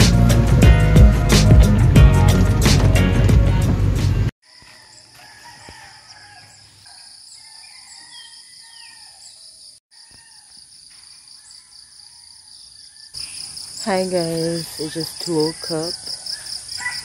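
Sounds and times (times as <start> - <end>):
insects chirring: 4.4 - 17.0
bird chirps: 6.4 - 17.0.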